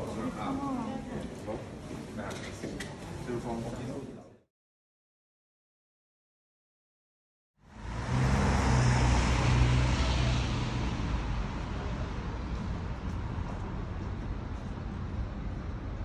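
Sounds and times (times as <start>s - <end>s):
road noise: 7.6s - 16.0s
vehicle engine hum and tyre noise: 7.6s - 16.0s.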